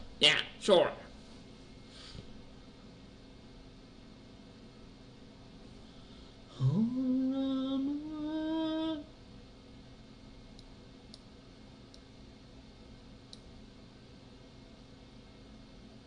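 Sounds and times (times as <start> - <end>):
person humming: 6.5 - 9.2.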